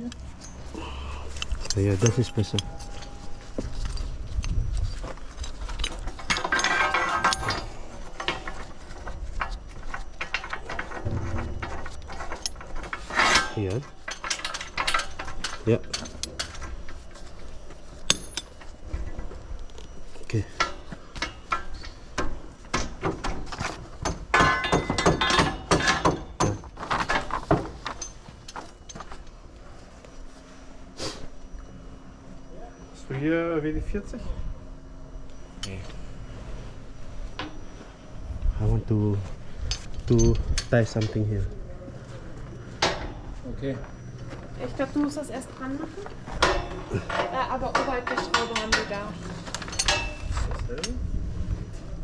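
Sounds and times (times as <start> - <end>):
metallic ring: 0.0 - 22.1, 24.0 - 29.3, 34.8 - 41.3, 42.0 - 52.0
metal clicks and clinks: 1.3 - 17.0, 46.4 - 51.0
metal-on-metal scraping: 1.3 - 29.1
scaffold tubes knocking and clinking: 20.6 - 29.0.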